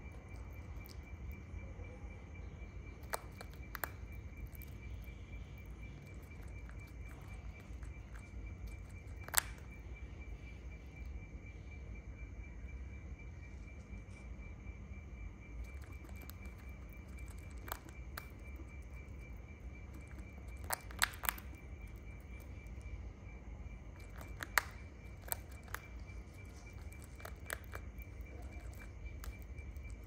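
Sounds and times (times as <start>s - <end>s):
high pulsing insect trill: 0.0s - 30.0s
sharp clicks and snaps: 3.0s - 5.0s, 6.1s - 9.8s, 20.0s - 22.8s, 24.0s - 30.0s.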